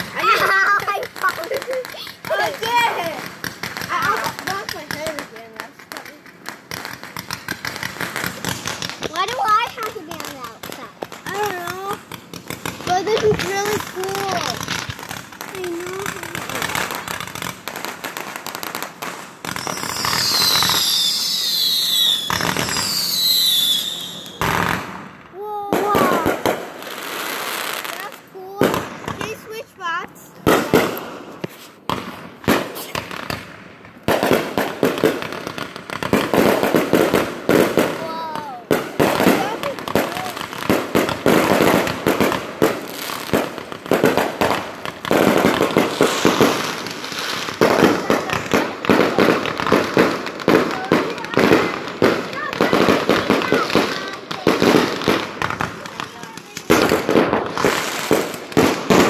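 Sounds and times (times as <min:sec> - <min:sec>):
fireworks banging: 0:00.0 - 0:59.0
fireworks crackling: 0:00.0 - 0:59.0
fireworks whistles falling in pitch: 0:19.5 - 0:24.9.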